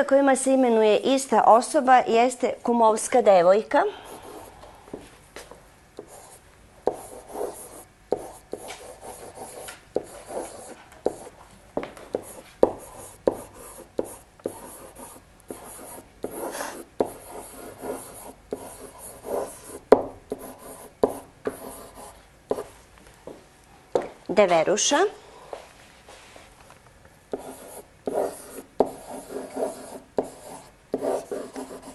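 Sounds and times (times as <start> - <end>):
pen writing on whiteboard: 6.0 - 11.4, 12.1 - 22.7, 27.3 - 31.9.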